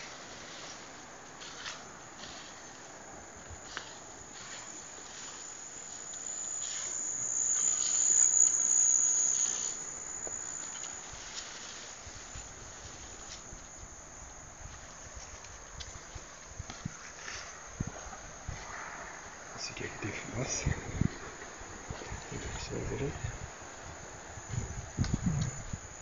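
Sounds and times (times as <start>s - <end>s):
shrill insect buzz: 3.7s - 14.2s.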